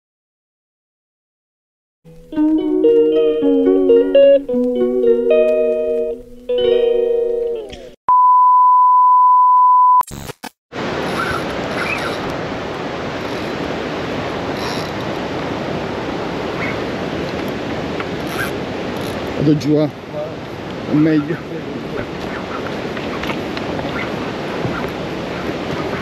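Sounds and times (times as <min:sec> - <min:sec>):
guitar music: 0:02.1 - 0:08.0
steady high beep: 0:08.1 - 0:10.0
wind noise on microphone: 0:21.9 - 0:26.0.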